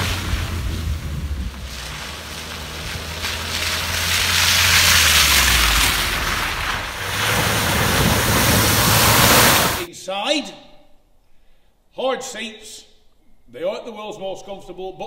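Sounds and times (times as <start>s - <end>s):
low engine hum: 0.0s - 9.9s
rushing tyres and wind: 0.0s - 9.9s.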